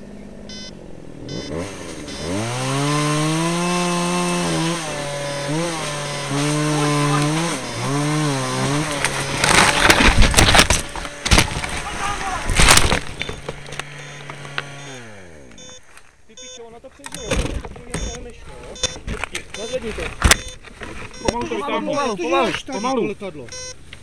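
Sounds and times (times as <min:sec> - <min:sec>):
chainsaw engine revving: 0:00.4 - 0:15.9
tree cracking and crashing: 0:01.5 - 0:14.8
branches breaking: 0:03.6 - 0:14.8.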